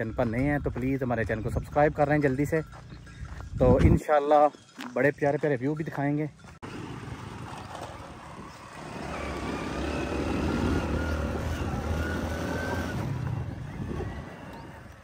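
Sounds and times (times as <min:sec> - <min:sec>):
vehicle engine running: 0:06.4 - 0:15.0.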